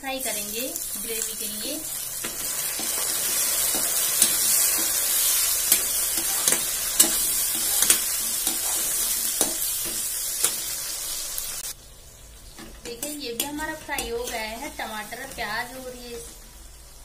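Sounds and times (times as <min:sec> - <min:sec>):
vegetables sizzling in hot oil: 0:00.0 - 0:17.0
metal spatula scraping a pan: 0:02.2 - 0:10.8, 0:12.8 - 0:16.4.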